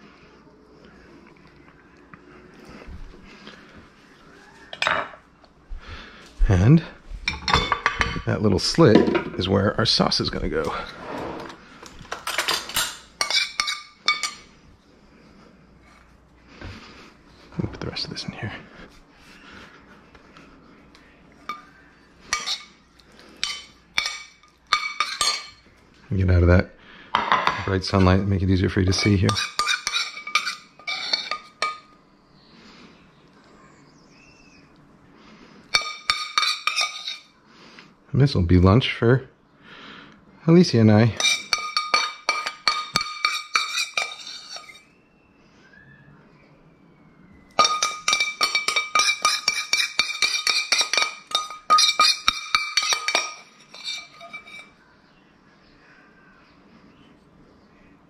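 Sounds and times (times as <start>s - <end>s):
metal spoon clinking on skillet: 12.2s - 14.4s, 21.5s - 22.8s, 23.4s - 25.6s, 29.0s - 31.9s, 35.7s - 37.3s, 41.2s - 44.8s, 47.6s - 54.8s.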